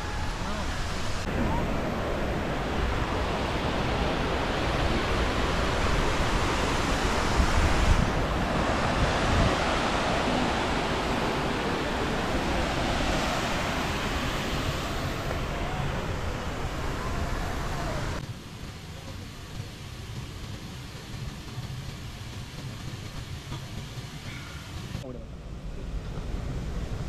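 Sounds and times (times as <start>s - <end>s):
waterfall rushing: 0.0s - 18.2s
wind buffeting microphone: 0.0s - 18.2s.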